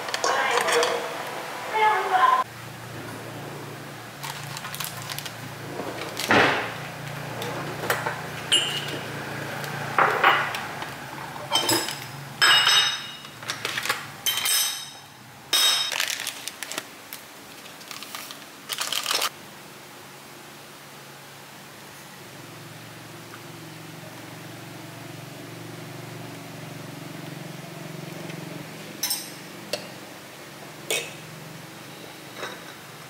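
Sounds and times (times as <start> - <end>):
plastic sachets rustling: 4.2 - 6.3, 13.4 - 14.2, 15.8 - 19.3
ceramic cups clinking: 7.9 - 9.1, 10.0 - 10.6, 11.4 - 13.4, 29.0 - 29.4, 32.3 - 32.9.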